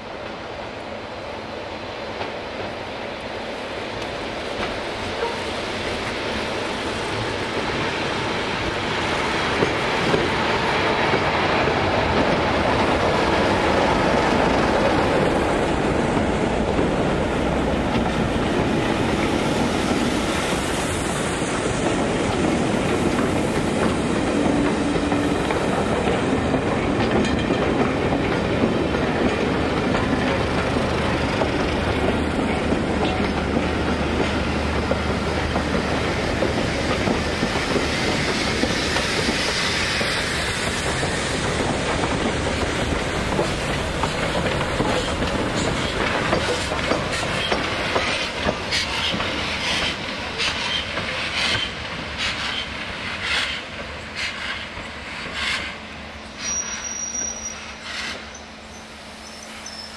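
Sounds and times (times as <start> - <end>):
train wheels clattering: 9.4 - 55.8.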